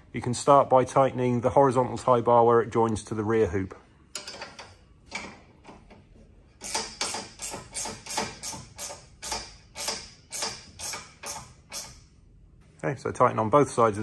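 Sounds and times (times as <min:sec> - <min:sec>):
ratchet spanner clicking: 0:06.6 - 0:12.0.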